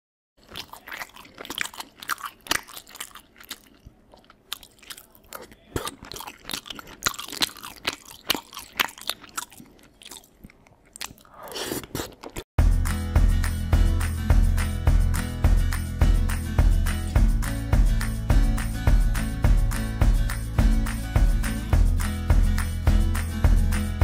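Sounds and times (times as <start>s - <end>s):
person chewing crunchy food: 0.4s - 12.5s.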